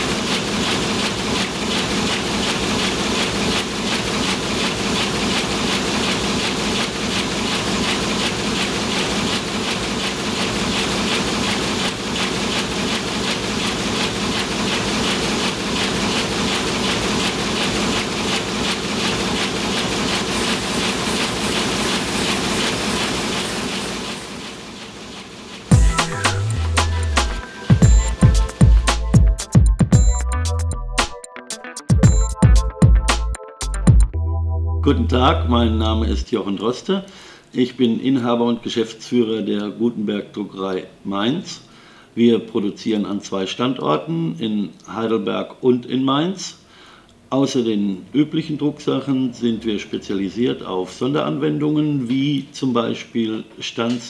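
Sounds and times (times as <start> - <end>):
printing press clattering: 0.0 - 29.6.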